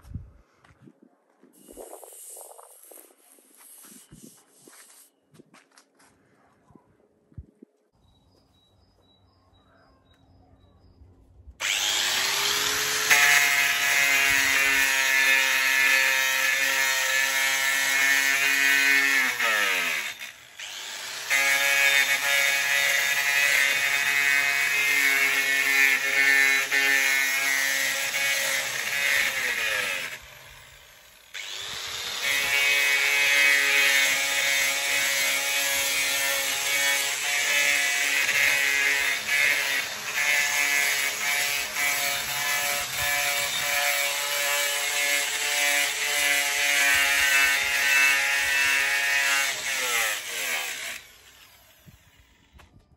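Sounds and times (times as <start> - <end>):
angle grinder grinding metal: 11.6 - 52.5.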